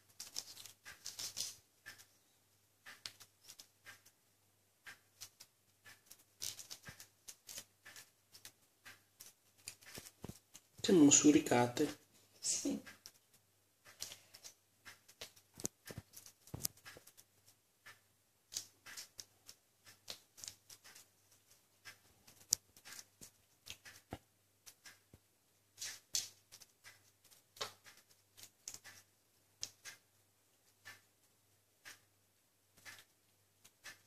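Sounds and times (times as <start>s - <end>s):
kitten chewing crunchy leaves: 0.0s - 1.6s, 5.2s - 8.6s, 9.2s - 10.8s, 18.5s - 21.6s.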